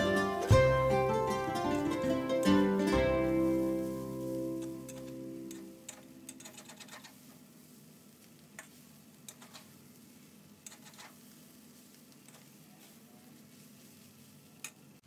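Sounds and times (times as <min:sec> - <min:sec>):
spatula scraping a wok: 0:03.4 - 0:07.8, 0:08.6 - 0:14.4.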